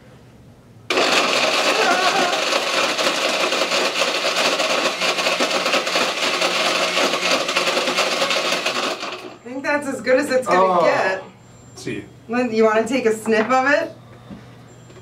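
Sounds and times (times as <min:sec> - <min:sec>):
blender motor chopping: 0:00.9 - 0:09.4.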